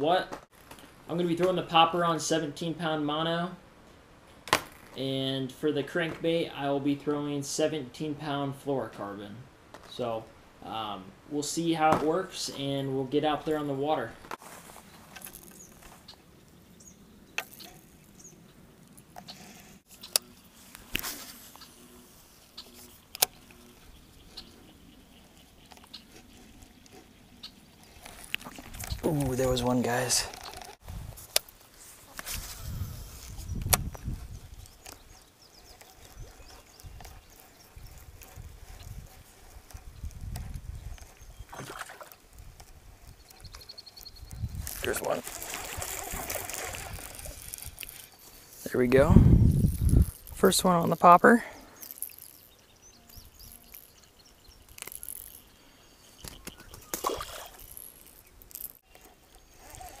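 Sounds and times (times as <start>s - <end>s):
fishing reel clicks: 45.8s - 48.2s, 51.8s - 54.0s, 54.6s - 55.6s, 57.0s - 60.0s.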